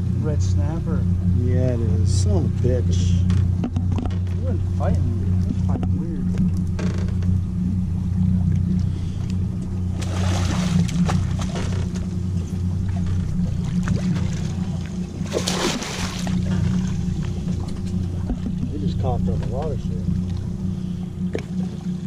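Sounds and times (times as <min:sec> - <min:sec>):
boat engine idling: 0:00.0 - 0:22.0
fish splashing at the surface: 0:10.0 - 0:11.7, 0:13.8 - 0:17.0.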